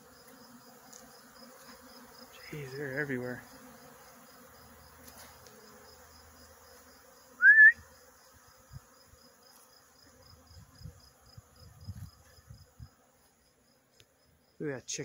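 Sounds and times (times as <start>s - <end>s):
bees buzzing: 0.0s - 14.0s
rising whistle-like note: 7.4s - 7.8s.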